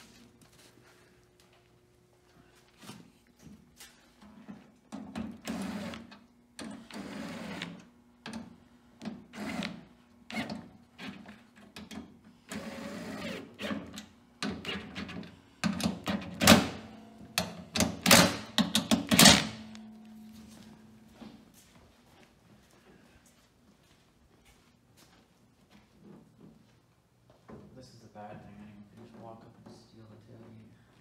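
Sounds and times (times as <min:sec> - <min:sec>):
cordless drill on sheet metal: 0:09.3 - 0:11.2, 0:12.5 - 0:14.0.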